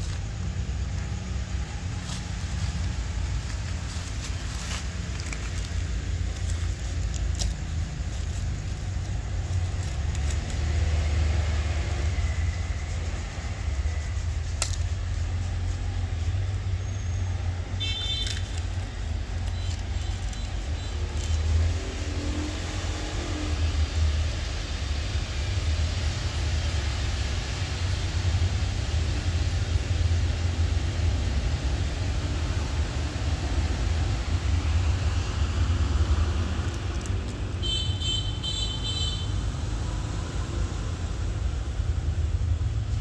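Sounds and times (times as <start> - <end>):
steady low rumble: 0.0 - 37.7
faint crinkling and clicks: 36.6 - 37.6.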